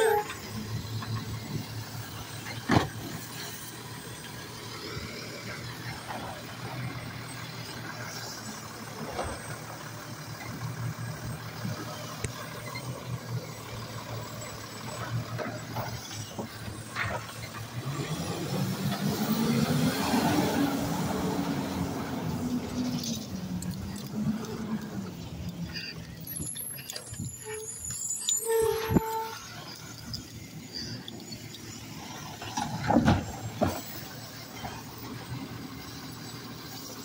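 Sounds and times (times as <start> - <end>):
trash cart clanking: 0.0 - 7.0, 8.0 - 37.0
garbage truck diesel engine: 0.0 - 37.0
hydraulic arm lifting: 12.2 - 35.4.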